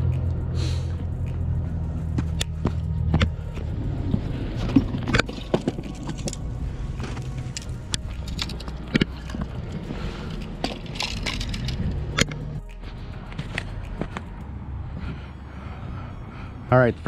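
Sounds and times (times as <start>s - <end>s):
low engine hum: 0.0s - 17.0s
fishing gear rattling: 4.6s - 12.5s.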